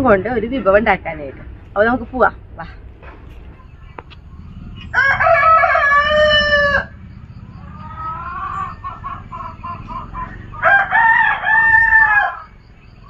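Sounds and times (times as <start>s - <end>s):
chicken clucking: 3.1s - 12.5s
rooster crowing: 4.6s - 13.0s.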